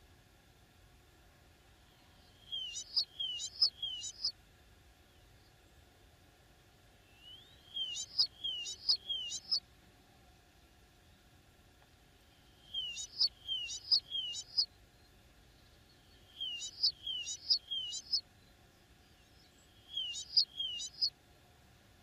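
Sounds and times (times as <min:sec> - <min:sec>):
small songbird singing: 0:01.9 - 0:04.4, 0:07.0 - 0:09.6, 0:12.5 - 0:21.1.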